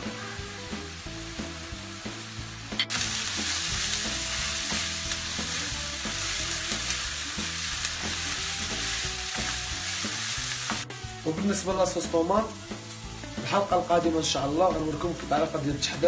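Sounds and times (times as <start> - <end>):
vegetables sizzling in frying pan: 0.0 - 16.0.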